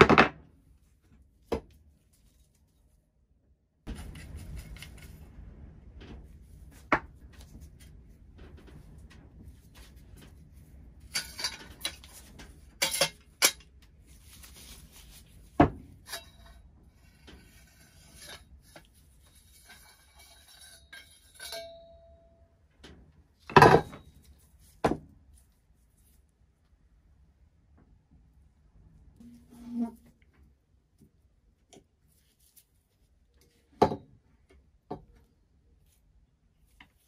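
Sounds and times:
light scraping and rattling: 3.9 - 22.1.

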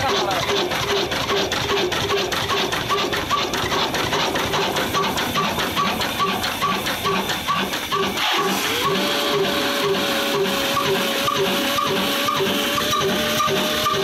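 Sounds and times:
stationary diesel engine running: 0.0 - 14.0.

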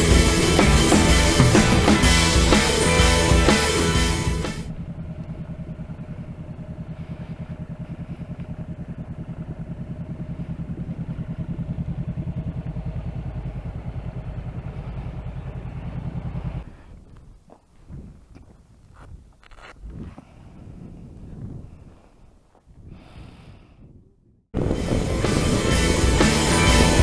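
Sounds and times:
motorcycle engine idling: 0.0 - 17.6.

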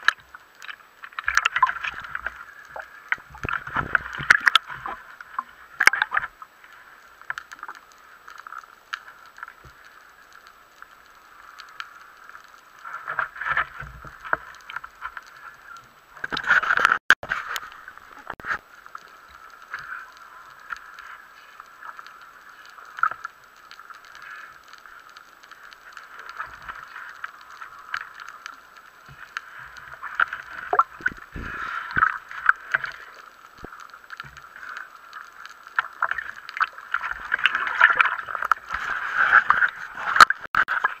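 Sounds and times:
bubbles crackling: 0.0 - 41.0
muffled underwater hiss: 0.0 - 41.0.

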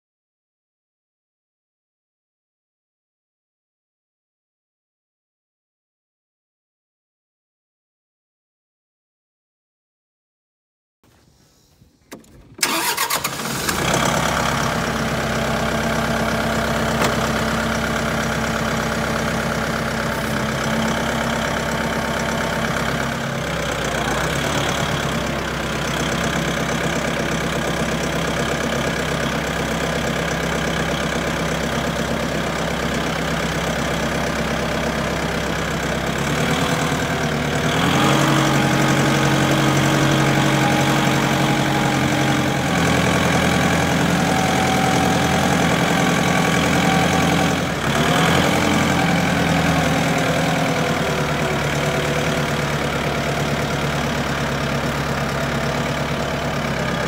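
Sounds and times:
tractor diesel engine running: 12.1 - 57.0.

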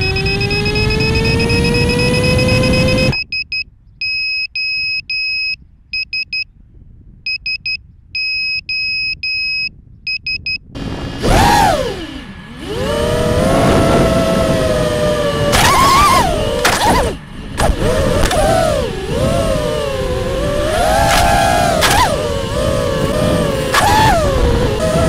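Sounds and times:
drone motors whining: 0.0 - 3.3, 10.8 - 25.0
short and long beeps: 0.0 - 6.5, 7.3 - 10.7.

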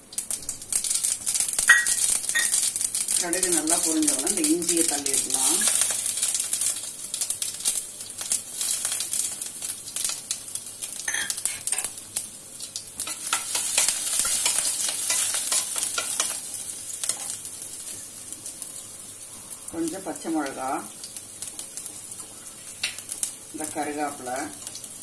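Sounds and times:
seeds crackling and popping: 0.0 - 25.0
sizzling in hot oil: 0.0 - 25.0
spoon stirring in steel pan: 1.6 - 2.8, 11.1 - 11.9, 13.0 - 18.0.

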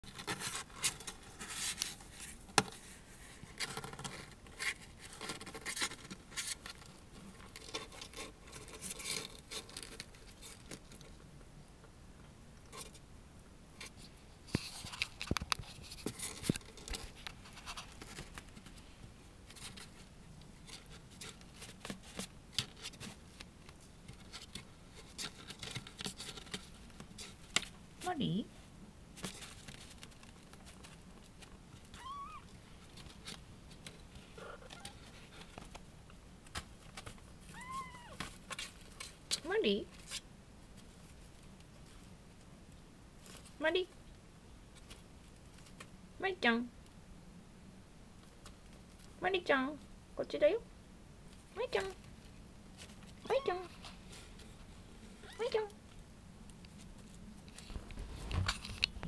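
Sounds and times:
kitten claws scratching cardboard: 0.1 - 11.0.

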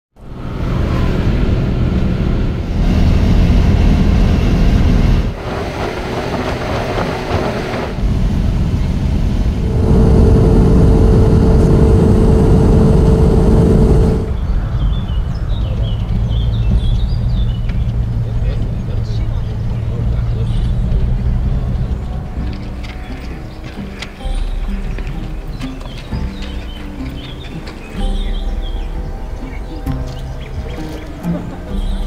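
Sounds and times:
vehicle engine and tyre rumble: 0.2 - 32.0
steady whine: 9.2 - 14.5.

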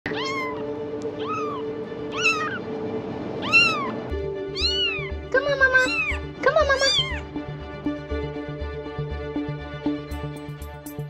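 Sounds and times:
cat meowing: 0.1 - 2.7, 3.4 - 7.3
background music: 0.1 - 11.0.

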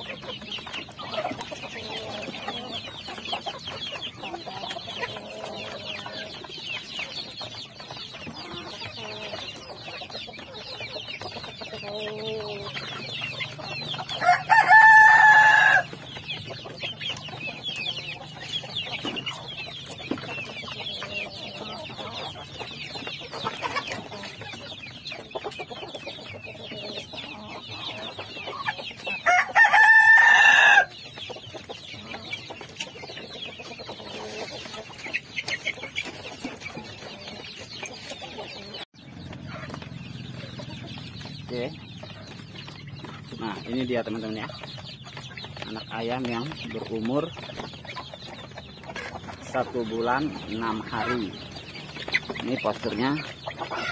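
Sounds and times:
chicks peeping: 0.0 - 53.9
rooster crowing: 14.2 - 15.9, 29.2 - 30.9.

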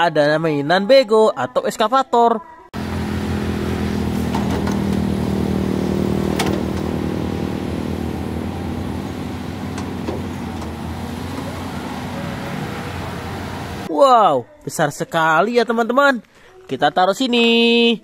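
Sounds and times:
excavator diesel engine running: 2.8 - 13.9.

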